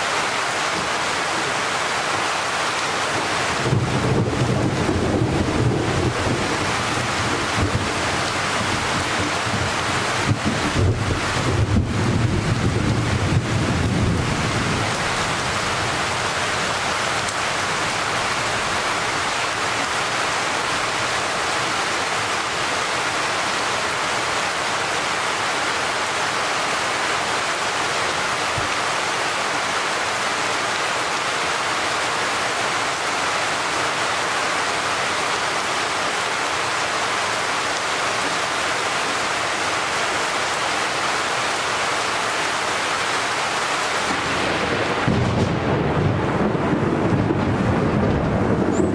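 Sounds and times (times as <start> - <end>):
steady rain hiss: 0.0 - 48.9.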